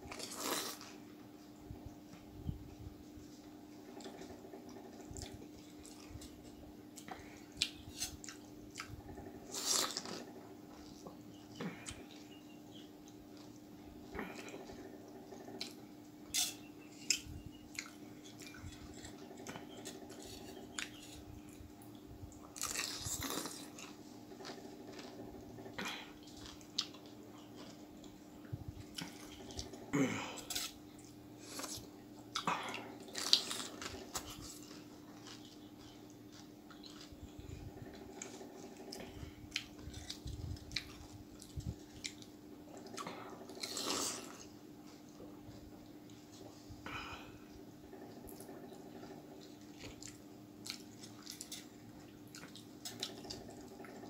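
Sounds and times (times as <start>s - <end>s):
wet chewing and crunching: 3.8s - 46.6s, 47.2s - 54.0s.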